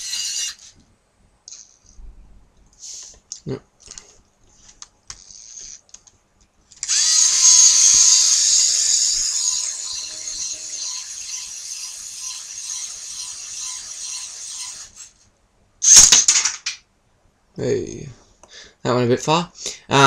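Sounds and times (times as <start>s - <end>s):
servo motor whirring and ratcheting: 0.0s - 0.8s, 5.2s - 5.8s, 6.8s - 15.2s.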